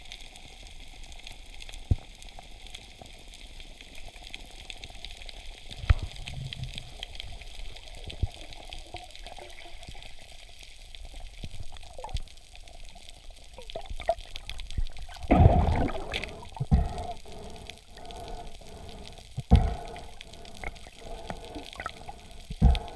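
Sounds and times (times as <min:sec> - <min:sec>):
low underwater noise: 0:00.0 - 0:22.9
rush of water: 0:15.0 - 0:22.9.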